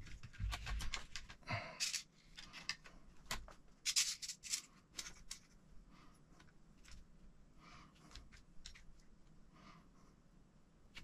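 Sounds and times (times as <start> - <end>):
plastic parts clicking and tapping: 0.0 - 5.6.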